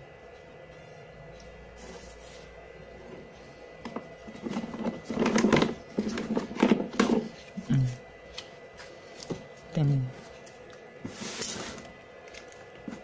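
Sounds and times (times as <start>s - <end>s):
plastic pieces knocking and rustling: 3.9s - 7.3s.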